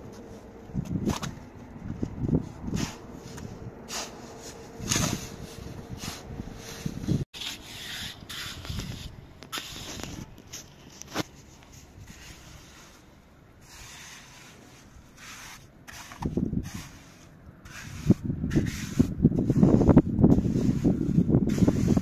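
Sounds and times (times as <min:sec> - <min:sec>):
trowel scraping wet mortar: 0:02.4 - 0:22.0.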